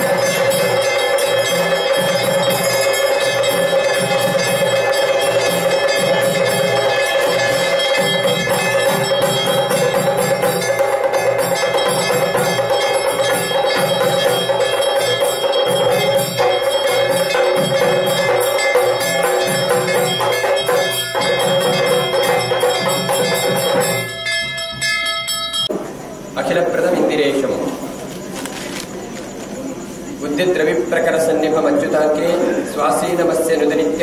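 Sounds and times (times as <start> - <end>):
temple bells ringing: 0.0 - 25.8.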